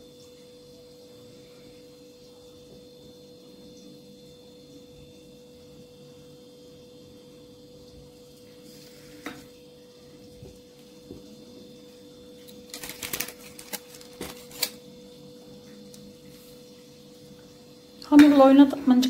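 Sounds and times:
faint steady hum: 0:00.0 - 0:19.0
parchment paper rustling: 0:12.4 - 0:14.8.

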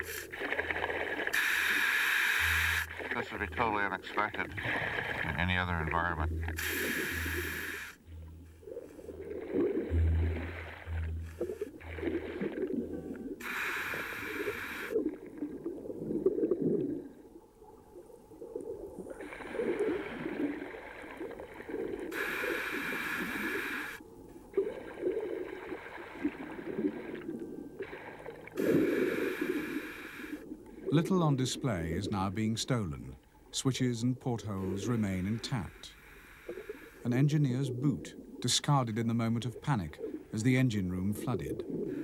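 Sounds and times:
exhaled bubbles gurgling: 0:00.0 - 0:32.4, 0:34.6 - 0:42.0
regulator inhale hiss: 0:01.3 - 0:02.9, 0:06.6 - 0:08.0, 0:13.4 - 0:15.0, 0:22.1 - 0:24.0, 0:28.6 - 0:30.5, 0:35.7 - 0:37.0.

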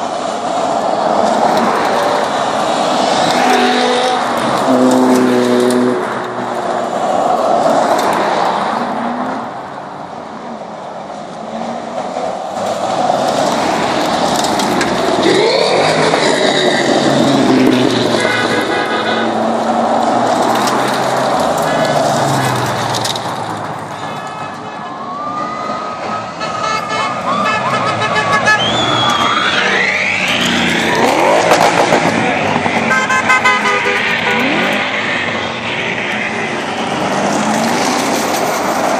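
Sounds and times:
cars driving past: 0:00.0 - 0:38.9
car horn toots: 0:17.6 - 0:19.8, 0:26.4 - 0:29.8, 0:32.8 - 0:34.8
car engine revving: 0:27.9 - 0:38.9.

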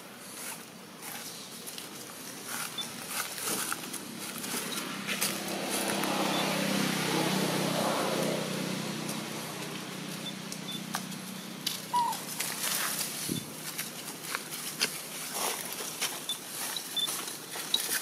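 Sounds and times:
motor engine running: 0:02.7 - 0:14.4.

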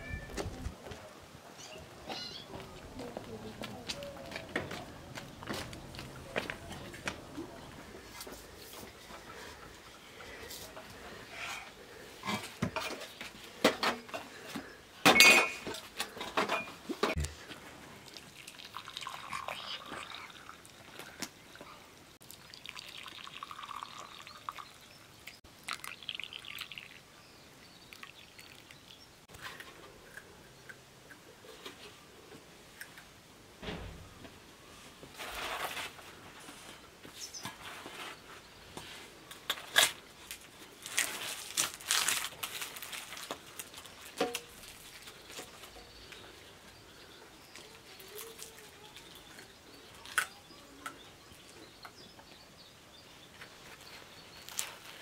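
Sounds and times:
glasses clinking: 0:15.1 - 0:15.8
tea pouring into glass cups: 0:17.8 - 0:29.1.

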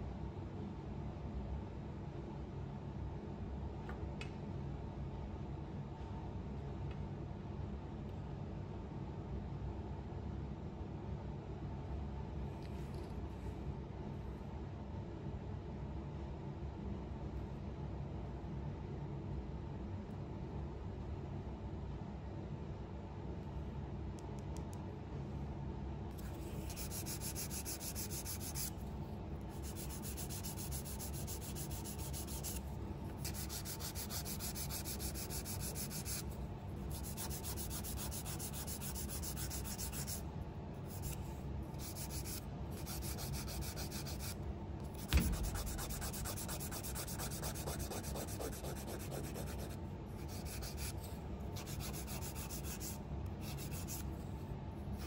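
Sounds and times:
nail file rasping: 0:26.2 - 0:28.7, 0:29.5 - 0:32.6, 0:33.2 - 0:36.2, 0:36.9 - 0:40.2, 0:41.8 - 0:44.4, 0:45.0 - 0:51.0, 0:51.6 - 0:54.0
sharp knock: 0:45.0 - 0:45.9.

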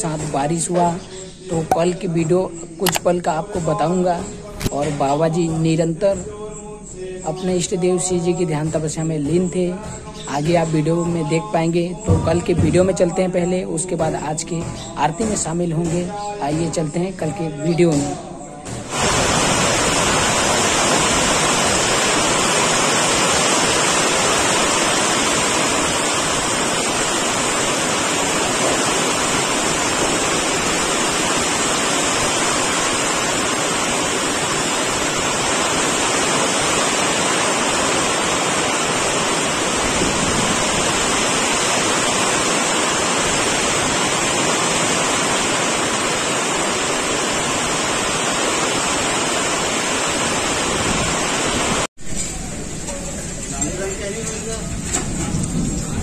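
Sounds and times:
torrential rain in wind: 0:18.9 - 0:56.0.

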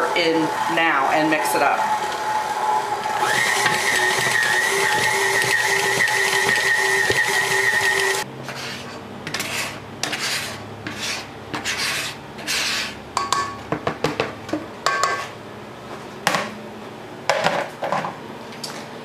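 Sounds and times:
scraper rasping in a bowl: 0:03.3 - 0:13.0.

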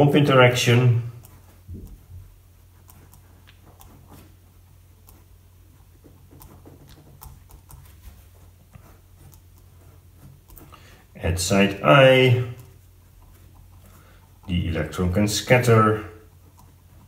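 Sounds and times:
low steady hum: 0:00.0 - 0:17.0
pen scratching on paper: 0:01.2 - 0:12.0.

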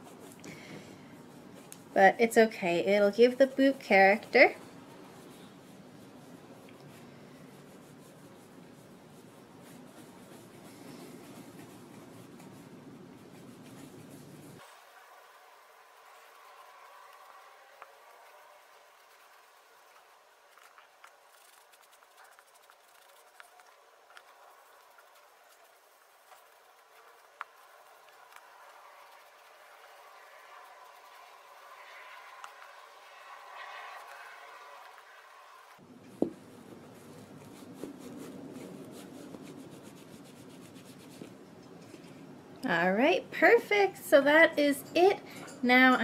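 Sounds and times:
soft ticks and scratches: 0:01.0 - 0:14.8, 0:16.0 - 0:43.6
cloth rubbing leather boot: 0:04.8 - 0:14.9, 0:16.3 - 0:41.4.

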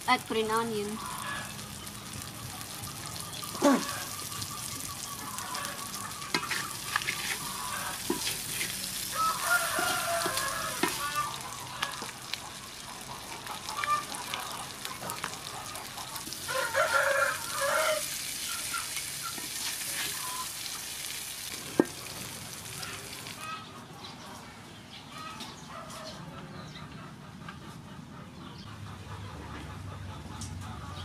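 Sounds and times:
food sizzling in a wok: 0:00.0 - 0:23.5
loud pitched calls: 0:02.8 - 0:12.1
wooden spatula clicking and scraping: 0:06.3 - 0:12.2.

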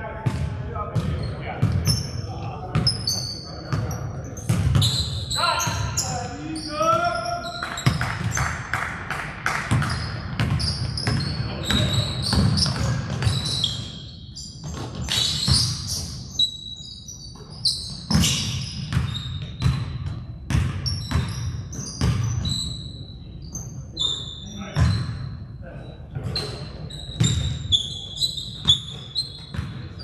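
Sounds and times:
sneaker squeaks: 0:00.2 - 0:08.6, 0:09.7 - 0:30.0
basketball bouncing on floor: 0:04.5 - 0:04.9, 0:07.7 - 0:08.8, 0:09.4 - 0:13.4, 0:17.4 - 0:22.5, 0:28.6 - 0:29.8.

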